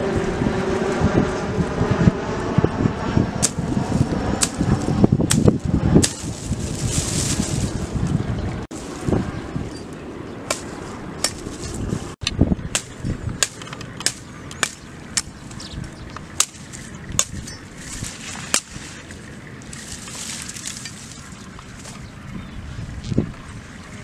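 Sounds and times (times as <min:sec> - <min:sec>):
wind noise on microphone: 0:00.0 - 0:24.0
knife chopping branch: 0:03.4 - 0:03.6, 0:04.4 - 0:04.6, 0:05.2 - 0:06.4, 0:10.5 - 0:11.8, 0:12.7 - 0:15.4, 0:16.4 - 0:17.4, 0:18.2 - 0:18.8.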